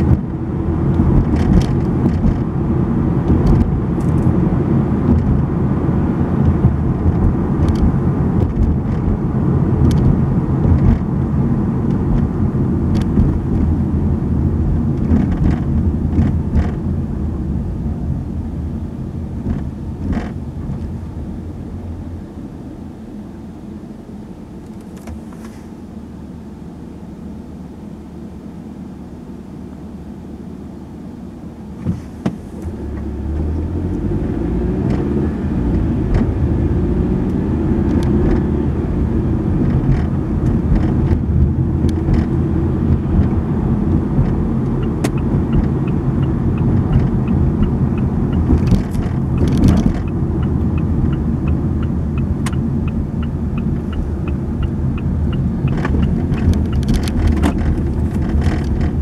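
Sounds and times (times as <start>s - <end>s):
car engine and tyre rumble: 0.0s - 59.0s
turn signal ticking: 32.6s - 59.0s.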